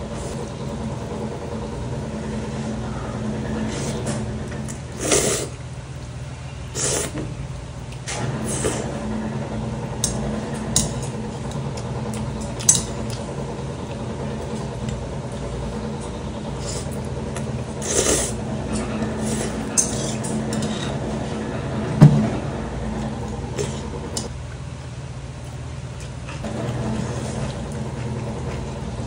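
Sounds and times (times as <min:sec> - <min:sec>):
steady low hum: 0:00.0 - 0:29.0
noodle slurping and chewing: 0:03.7 - 0:05.6, 0:06.7 - 0:07.2, 0:16.5 - 0:21.2.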